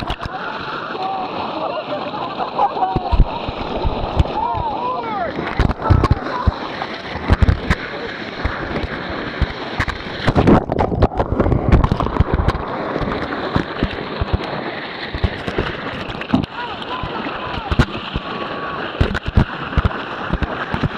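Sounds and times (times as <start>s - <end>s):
water splashing: 0.0s - 20.9s
whitewater rushing: 0.0s - 20.9s.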